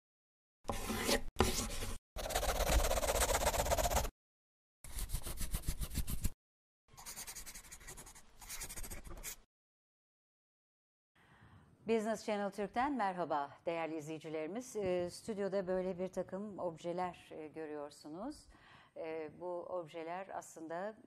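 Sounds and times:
pen scribbling on paper: 0.7s - 4.1s, 4.9s - 6.4s, 7.0s - 9.4s.

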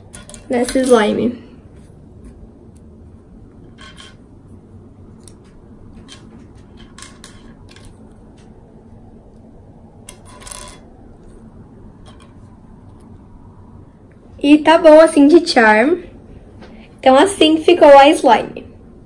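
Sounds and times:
plastic charms clicking and tapping: 0.1s - 1.0s, 5.2s - 8.5s.

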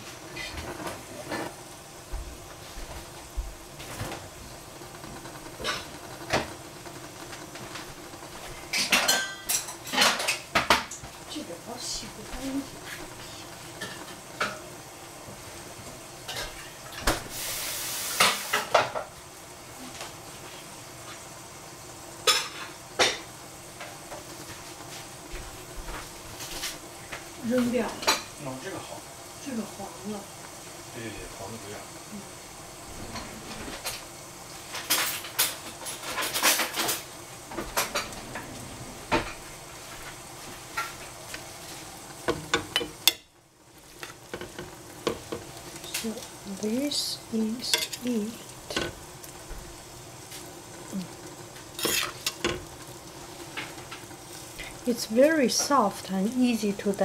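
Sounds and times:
greens sizzling in a pot: 0.0s - 57.0s
kitchen utensils clinking: 5.3s - 6.5s, 8.6s - 11.0s, 34.7s - 39.5s, 44.1s - 49.0s, 51.7s - 52.7s.

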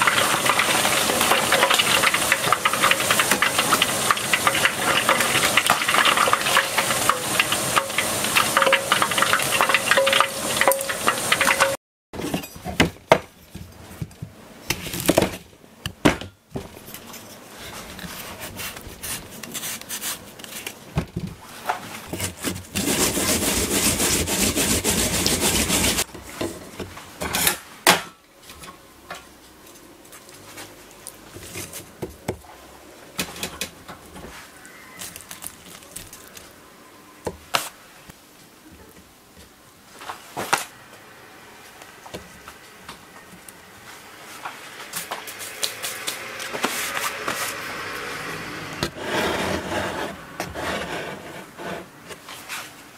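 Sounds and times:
fish deep-frying in oil: 0.0s - 11.8s
radish being grated: 17.0s - 20.8s, 22.0s - 26.1s.

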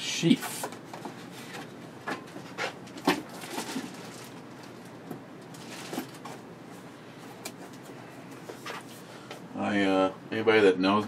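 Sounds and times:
paper and cardboard rustling: 0.5s - 4.8s, 5.5s - 6.5s.

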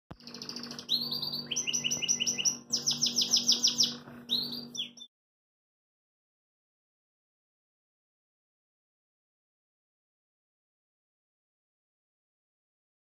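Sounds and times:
songbird trilling: 0.2s - 5.1s.

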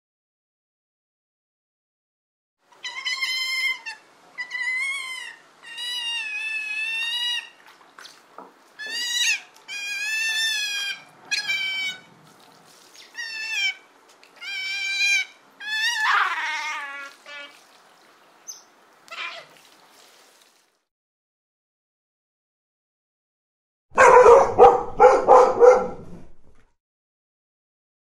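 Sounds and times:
sea otter squealing calls: 2.7s - 7.6s, 8.8s - 12.1s, 13.0s - 17.6s, 18.5s - 19.6s.

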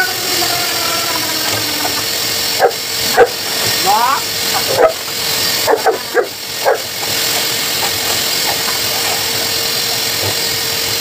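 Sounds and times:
pet blow dryer running: 0.0s - 11.0s
puppy barking: 2.6s - 3.4s, 4.6s - 6.9s.

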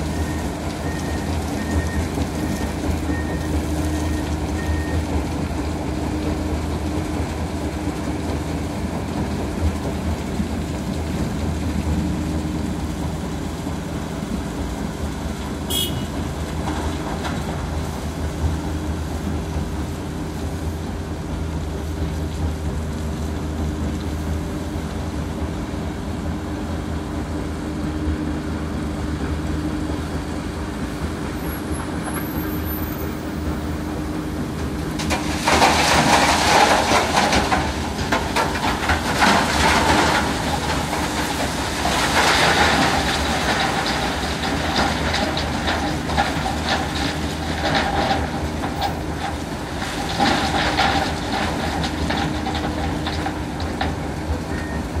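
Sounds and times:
heavy machinery engines running: 0.0s - 55.0s
rock grinding through crusher: 34.8s - 54.1s.

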